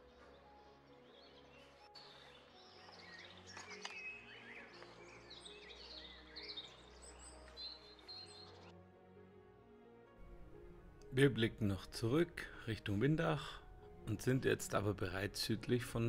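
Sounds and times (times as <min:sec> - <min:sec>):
birds chirping: 0:00.0 - 0:08.8
soft background music: 0:00.0 - 0:16.0.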